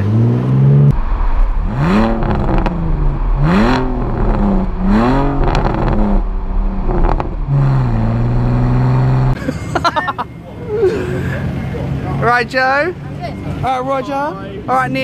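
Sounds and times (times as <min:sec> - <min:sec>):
car engine revving: 0:00.0 - 0:09.4
exhaust cracks: 0:00.8 - 0:09.4.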